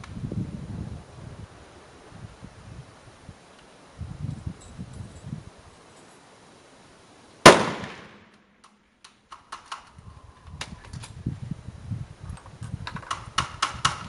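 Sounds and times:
rifle shot with echo: 0:07.4 - 0:08.5.

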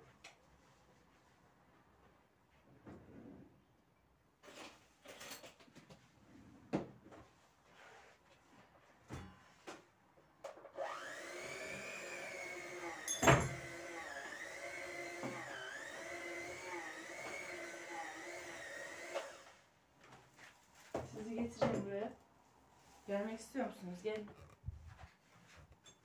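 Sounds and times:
small electric motor running: 0:10.8 - 0:19.5.

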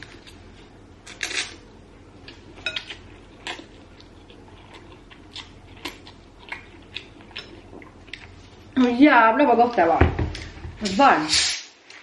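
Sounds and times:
chewing noodles: 0:02.2 - 0:08.7.

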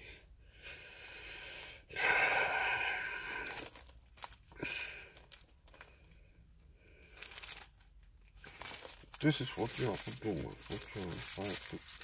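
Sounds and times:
handling rustle: 0:03.5 - 0:05.9, 0:07.1 - 0:12.0.

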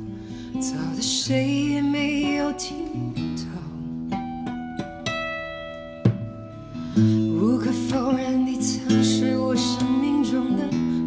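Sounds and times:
woman singing a slow ballad: 0:00.0 - 0:04.2, 0:06.8 - 0:11.0
acoustic guitar: 0:00.0 - 0:11.0.

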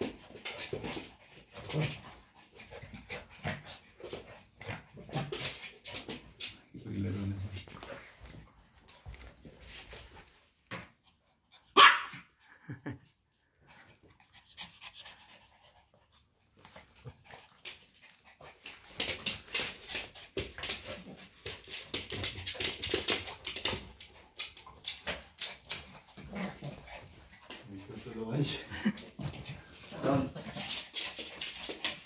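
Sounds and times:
dogs panting heavily: 0:00.0 - 0:06.7, 0:13.0 - 0:32.0
dog barking: 0:11.8 - 0:12.3.

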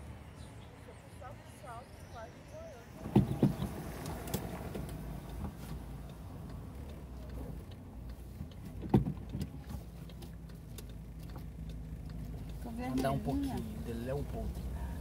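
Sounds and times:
car engine running: 0:00.0 - 0:15.0
faint ticks: 0:03.6 - 0:13.8.

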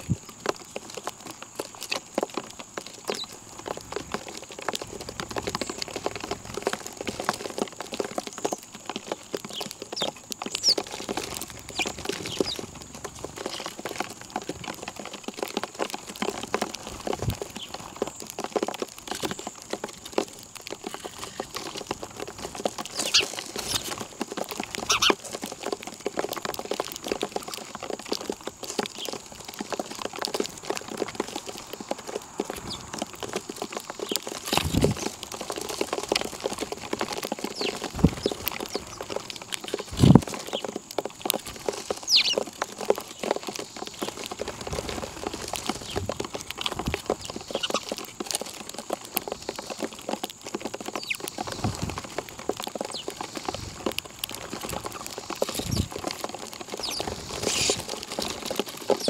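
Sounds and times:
birds pecking at feed: 0:00.0 - 0:59.0
high bird chirp: 0:11.7 - 0:12.6, 0:22.9 - 0:23.8, 0:24.9 - 0:25.2, 0:42.1 - 0:42.4, 0:47.4 - 0:47.9.

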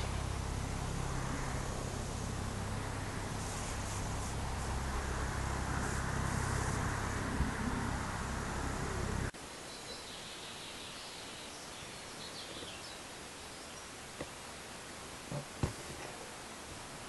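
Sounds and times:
low rumble: 0:00.0 - 0:09.3
distant birds chirping: 0:00.0 - 0:15.7
steady hiss: 0:00.0 - 0:17.0.

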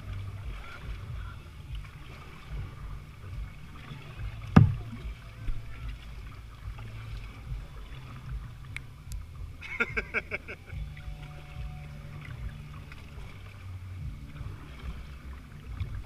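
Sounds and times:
kayak rumbling on water: 0:00.0 - 0:16.0
sharp knock: 0:04.6 - 0:04.8.

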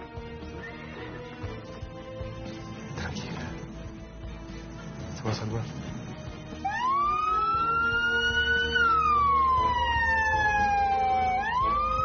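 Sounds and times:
ambulance siren wailing: 0:04.6 - 0:12.0.

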